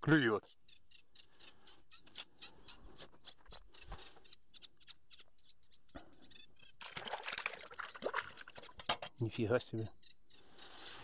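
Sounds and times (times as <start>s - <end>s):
small birds chirping: 0.0s - 6.8s, 8.6s - 11.0s
fish splashing into bucket of water: 6.8s - 8.8s.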